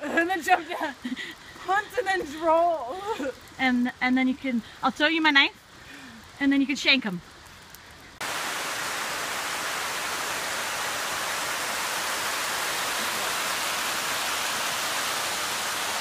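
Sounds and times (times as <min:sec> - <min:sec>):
creek rushing over rocks: 0:08.2 - 0:16.0.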